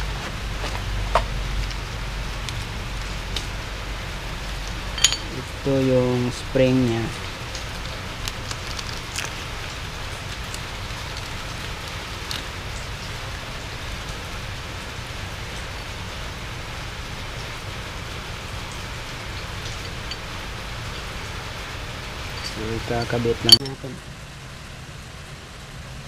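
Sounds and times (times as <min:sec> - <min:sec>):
water pattering on concrete: 0:00.0 - 0:05.4, 0:06.9 - 0:21.6.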